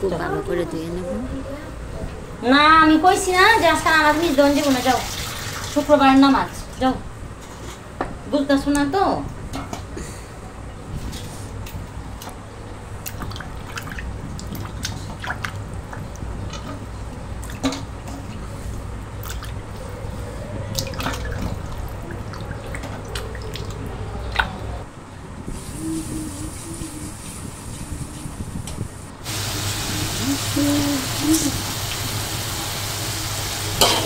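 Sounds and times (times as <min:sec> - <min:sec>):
hands washing fish in water: 0:13.0 - 0:24.8.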